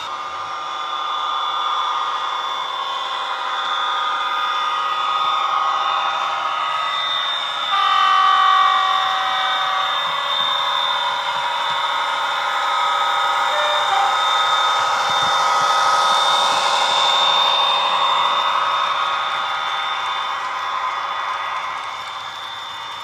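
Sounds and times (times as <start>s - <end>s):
locomotive horn: 7.6s - 15.4s.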